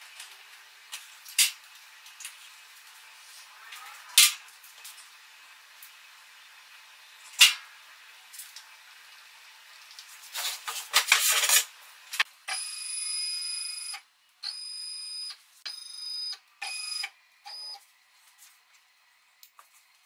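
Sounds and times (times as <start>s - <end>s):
scraping and rattling: 10.2s - 11.7s.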